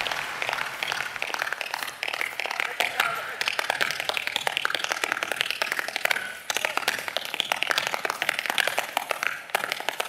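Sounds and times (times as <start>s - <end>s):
tap shoes on stage floor: 0.0s - 10.0s.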